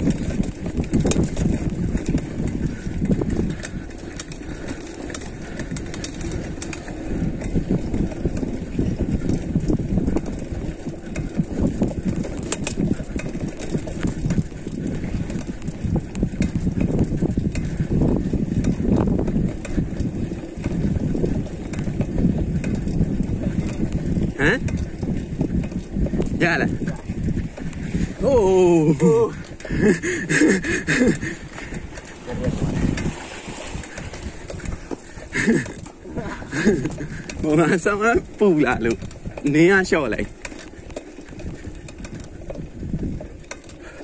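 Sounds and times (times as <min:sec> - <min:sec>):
bike clicks and rattles: 0:00.0 - 0:44.0
tyres rolling on dirt: 0:00.0 - 0:44.0
wind buffeting microphone: 0:00.0 - 0:44.0.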